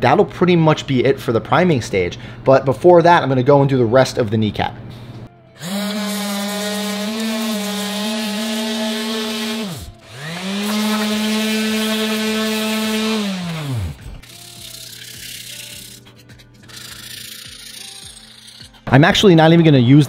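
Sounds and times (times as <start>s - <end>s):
electric sander whining: 5.6s - 15.2s.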